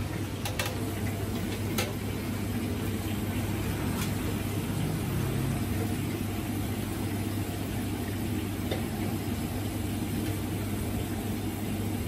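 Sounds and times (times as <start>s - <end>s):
gas burner roaring: 0.0s - 12.0s
oil sizzling in a wok: 0.0s - 12.0s.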